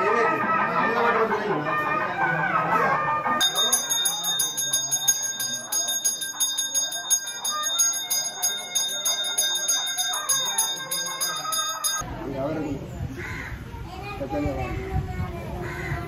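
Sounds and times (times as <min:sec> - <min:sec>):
hand bell rung rapidly: 0:03.4 - 0:12.0.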